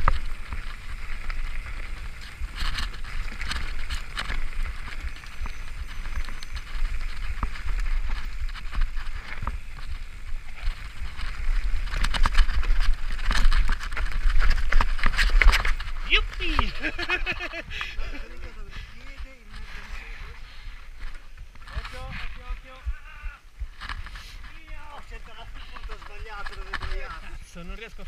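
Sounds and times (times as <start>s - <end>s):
bike clattering over bumps: 0.0s - 16.0s
bike tyres on dirt: 0.0s - 28.0s
wind rumbling on microphone: 0.0s - 28.0s.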